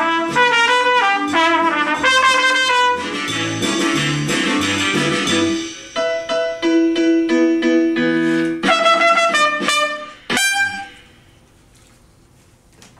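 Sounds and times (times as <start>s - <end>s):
trumpet playing: 0.0s - 5.7s, 8.3s - 11.3s
keyboard chords: 0.0s - 11.4s.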